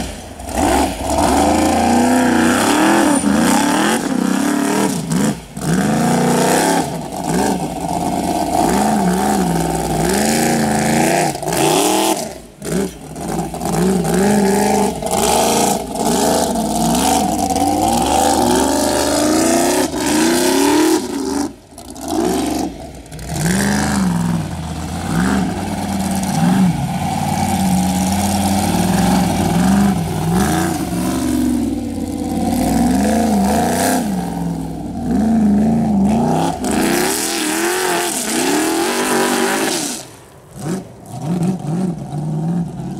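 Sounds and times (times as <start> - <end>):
buggy engine revving: 0.0 - 42.9.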